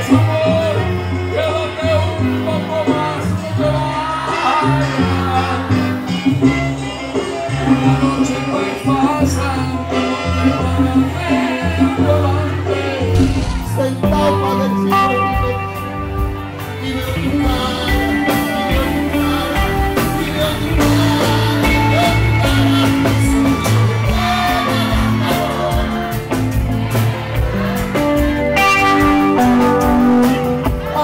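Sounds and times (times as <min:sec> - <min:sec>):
man singing into microphone: 0:00.0 - 0:05.9, 0:07.7 - 0:16.0, 0:16.6 - 0:26.2
live latin band music: 0:00.0 - 0:31.0.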